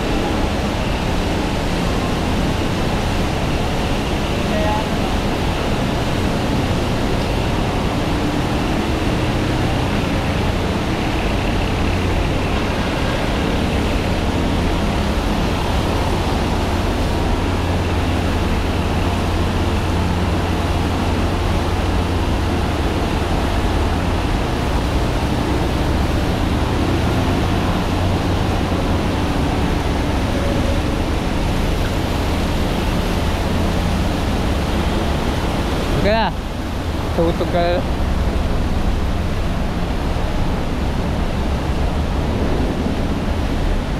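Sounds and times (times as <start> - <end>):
highway traffic rumble and hiss: 0.0 - 43.9.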